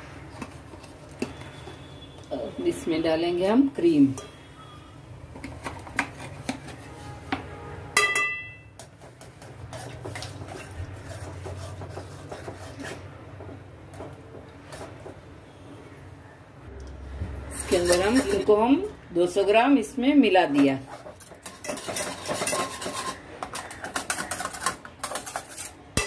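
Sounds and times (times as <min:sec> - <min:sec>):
spoon scraping metal pot: 0:05.4 - 0:07.0, 0:08.8 - 0:13.1, 0:17.6 - 0:18.6, 0:20.5 - 0:26.0.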